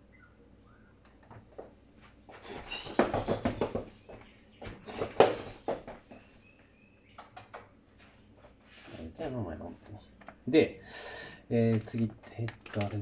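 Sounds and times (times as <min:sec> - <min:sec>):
rustling and knocking of objects: 0:01.1 - 0:06.4.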